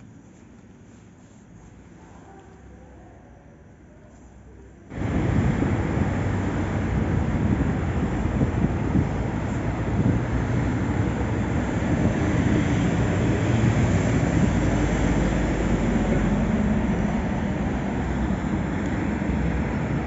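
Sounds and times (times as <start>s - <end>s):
car engine idling: 4.9s - 20.0s.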